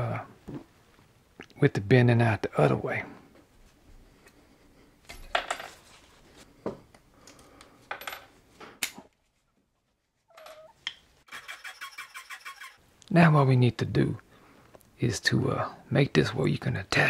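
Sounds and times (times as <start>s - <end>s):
metal pieces clinking on bench: 10.3s - 10.7s.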